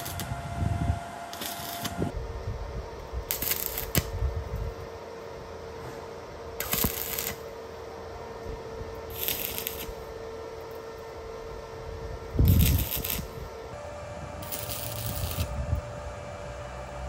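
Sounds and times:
welding arc crackling: 0.0 - 0.4, 1.3 - 2.1, 3.2 - 4.2, 6.6 - 7.6, 9.0 - 10.1, 12.4 - 13.4, 14.4 - 15.6
steady hum: 0.0 - 17.0.

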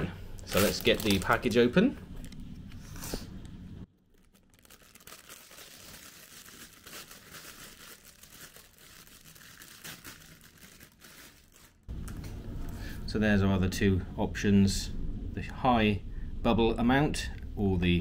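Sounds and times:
plastic bag crinkling and tearing: 0.4 - 2.4, 3.9 - 11.9.

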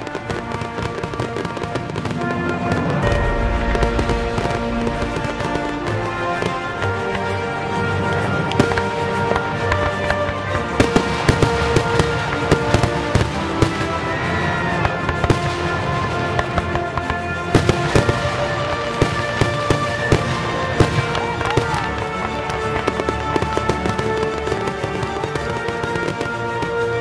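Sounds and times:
fireworks banging: 0.0 - 27.0
music playing: 0.0 - 27.0.

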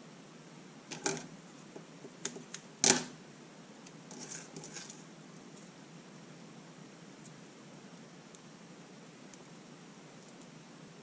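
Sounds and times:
taped wire rustling: 4.1 - 5.7.

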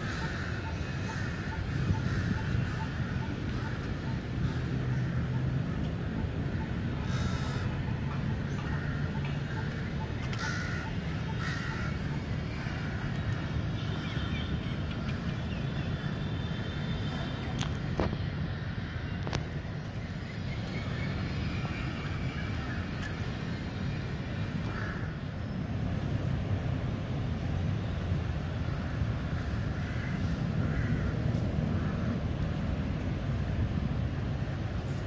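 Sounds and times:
low rumble of city traffic: 0.0 - 35.0.

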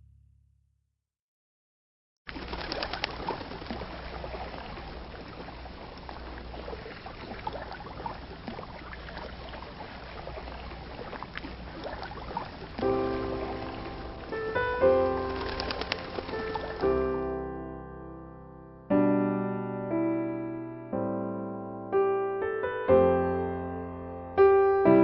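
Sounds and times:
trickling water: 2.3 - 17.3
birds cooing: 14.9 - 17.2.

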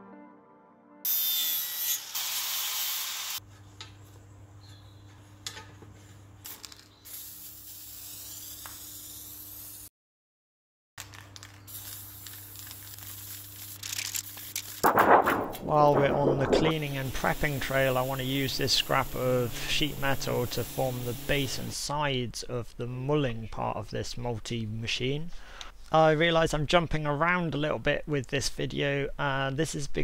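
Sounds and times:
power tool scouring steel: 1.1 - 3.4
spray paint hissing: 6.4 - 9.9, 11.7 - 15.0, 16.7 - 21.8
pressure washer jet hissing: 16.7 - 21.8.

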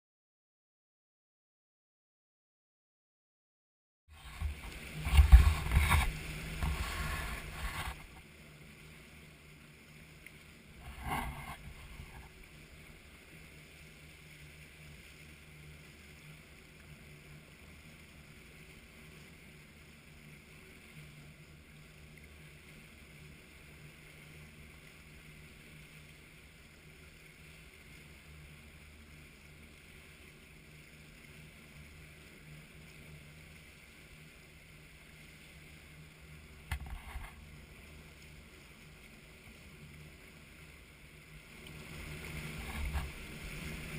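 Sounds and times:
boat engine hum: 4.1 - 43.9
water rushing in wake: 4.1 - 43.9.

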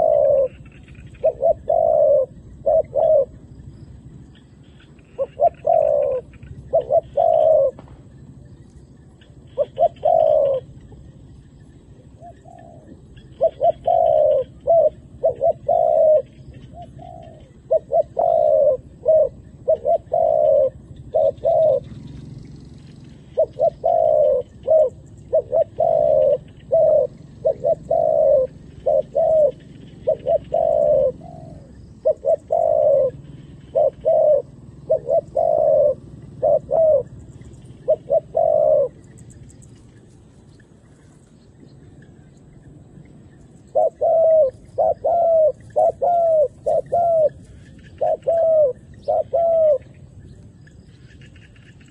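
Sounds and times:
dove cooing: 0.0 - 41.2, 41.9 - 51.9.

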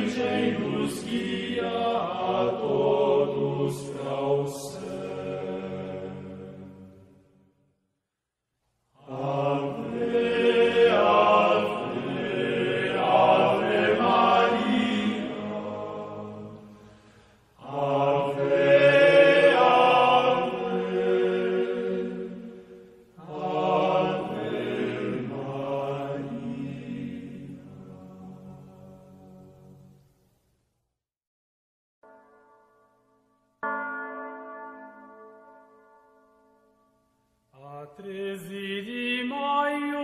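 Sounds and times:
choral chanting: 0.0 - 7.4, 9.0 - 17.0, 17.6 - 30.0.

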